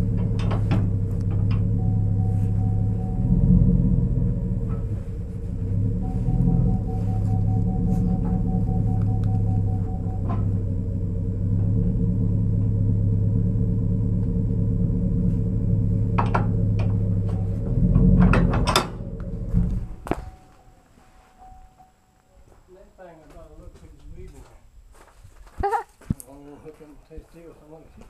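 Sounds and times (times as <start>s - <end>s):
engine idling: 0.0s - 20.8s
metal clanks of trailer coupler: 16.2s - 19.1s.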